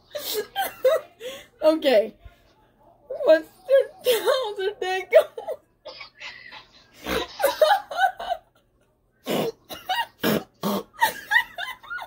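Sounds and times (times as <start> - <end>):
woman stifling laughter: 5.1 - 12.0.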